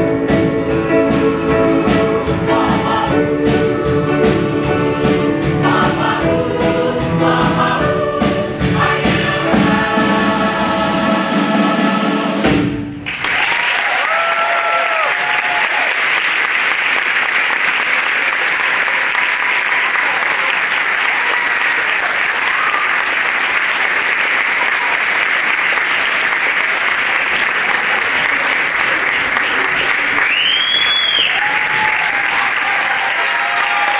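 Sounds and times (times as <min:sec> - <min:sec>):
choir and band chord: 0:00.0 - 0:12.8
audience applauding: 0:13.0 - 0:33.9
audience cheering: 0:13.0 - 0:33.9.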